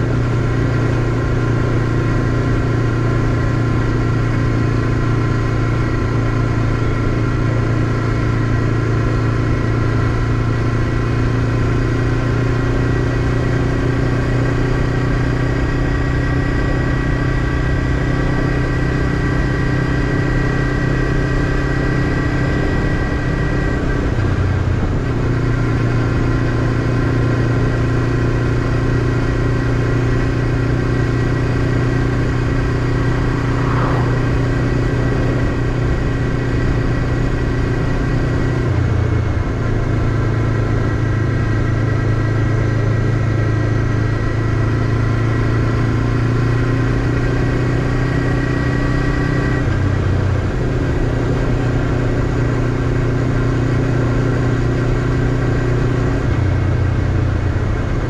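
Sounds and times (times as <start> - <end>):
motorcycle engine running: 0.0 - 58.0
road and wind noise: 0.0 - 58.0.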